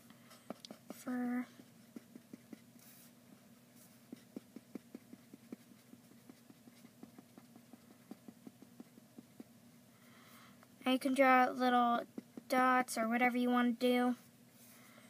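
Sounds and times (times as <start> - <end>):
faint steady hum: 0.0 - 15.0
marker ticking on paper: 0.4 - 2.9, 4.0 - 9.5, 12.1 - 12.6.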